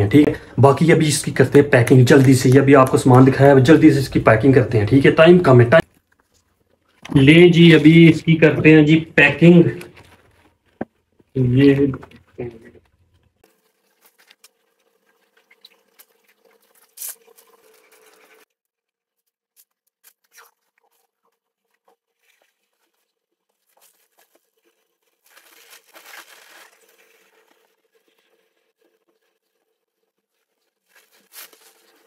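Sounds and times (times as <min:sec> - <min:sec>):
bag material crinkling: 0:13.5 - 0:18.5, 0:19.6 - 0:28.4, 0:30.3 - 0:32.0
clothes rustling: 0:21.6 - 0:28.4, 0:30.3 - 0:32.0.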